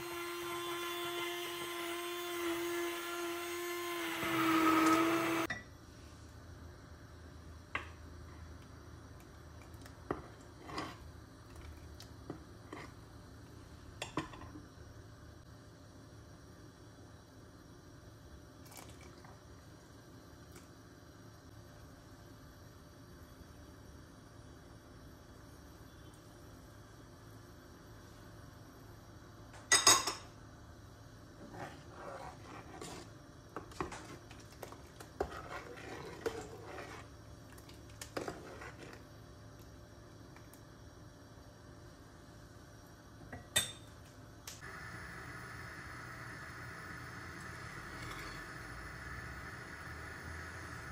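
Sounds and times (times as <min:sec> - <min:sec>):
ladle stirring thick soup: 0:31.4 - 0:39.1.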